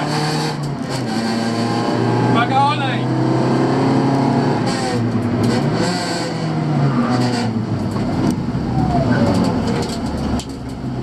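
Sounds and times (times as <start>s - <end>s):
car engine revving: 0.0s - 11.0s
sharp clicks and knocks: 9.3s - 11.0s.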